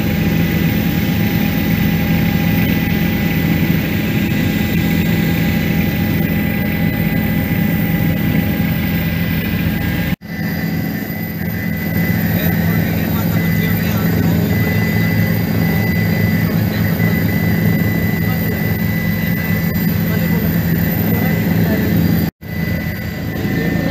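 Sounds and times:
helicopter engine and rotors droning: 0.0 - 23.9
high-pitched whine: 0.0 - 23.9.

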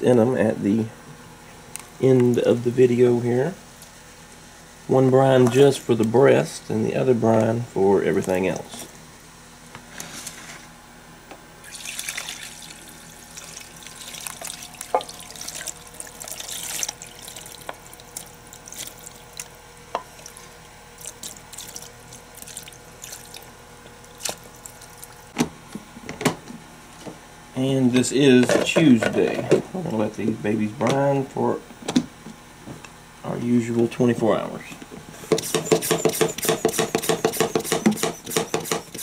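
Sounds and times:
liquid splashing and trickling: 11.6 - 23.5.

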